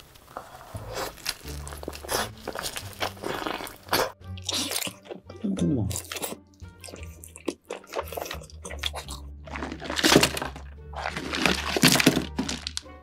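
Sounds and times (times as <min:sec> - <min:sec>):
chewing and crunching: 0:00.2 - 0:13.0.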